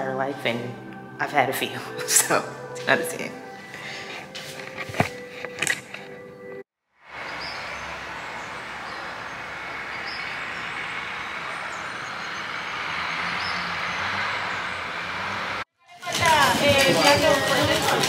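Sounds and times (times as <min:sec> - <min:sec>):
rushing outdoor ambience: 0:07.0 - 0:18.0.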